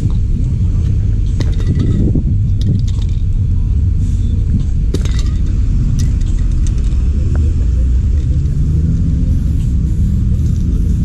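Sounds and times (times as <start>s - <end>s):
loud low rumble: 0.0s - 11.0s.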